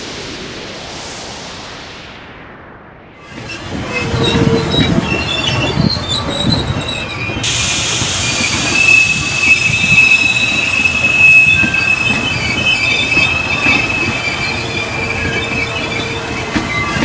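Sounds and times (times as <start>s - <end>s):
train wheels rumbling and clattering: 3.2s - 17.0s
high wheel squeals: 3.9s - 17.0s
loud hiss: 7.4s - 15.2s.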